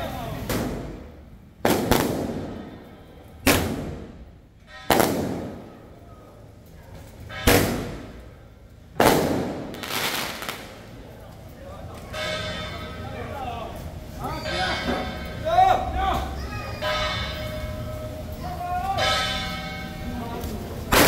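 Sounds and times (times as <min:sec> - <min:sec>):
firecracker bangs: 0:00.4 - 0:02.8, 0:03.4 - 0:05.9, 0:07.3 - 0:10.9.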